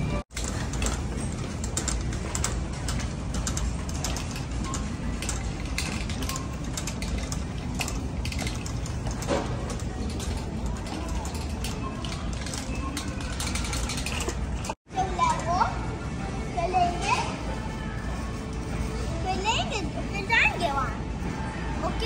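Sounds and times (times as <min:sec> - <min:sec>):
wheels rolling rumble: 0:00.0 - 0:15.6
shopping cart rattling: 0:00.3 - 0:15.7.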